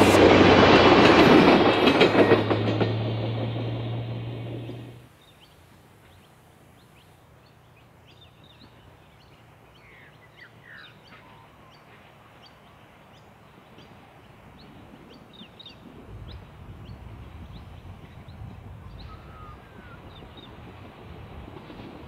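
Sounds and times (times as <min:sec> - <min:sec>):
distant diesel engine hum: 0:00.0 - 0:12.8
birds chirping: 0:04.6 - 0:14.0, 0:14.6 - 0:20.7.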